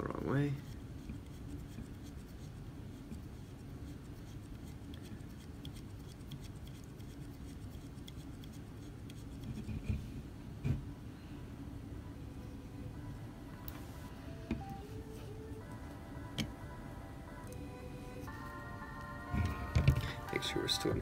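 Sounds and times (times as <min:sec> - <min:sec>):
low steady hum: 0:00.0 - 0:21.0
fingers scratching and clicking: 0:01.0 - 0:10.0.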